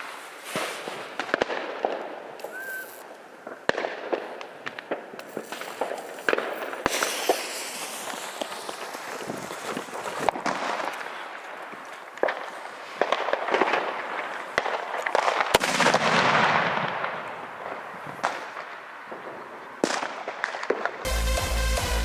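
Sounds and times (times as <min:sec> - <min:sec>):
firework hissing: 0:00.0 - 0:01.3, 0:02.4 - 0:03.1, 0:05.2 - 0:11.2.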